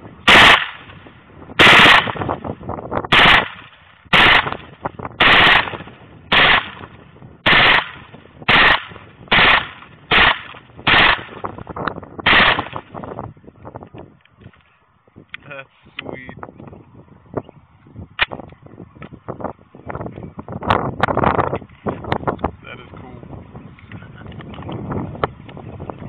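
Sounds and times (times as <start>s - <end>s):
submachine gun firing bursts: 0.3s - 0.8s, 1.6s - 2.2s, 3.1s - 4.6s, 5.2s - 6.8s, 7.4s - 11.4s, 12.3s - 12.8s.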